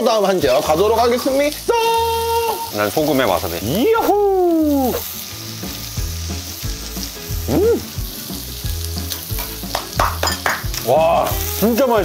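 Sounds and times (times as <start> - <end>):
meat sizzling on grill: 0.0 - 12.0
person yelling: 1.7 - 2.8, 3.8 - 5.0, 7.4 - 7.9.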